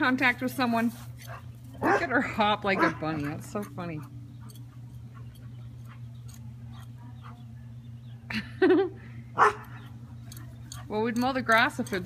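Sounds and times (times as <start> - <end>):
steady low hum: 0.0 - 12.0
young dog yelping: 9.4 - 10.0.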